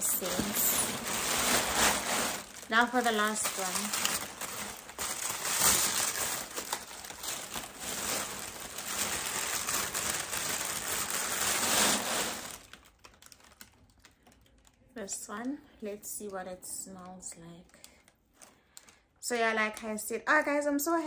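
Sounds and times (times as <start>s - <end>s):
packaging crinkling and rustling: 0.0s - 15.5s.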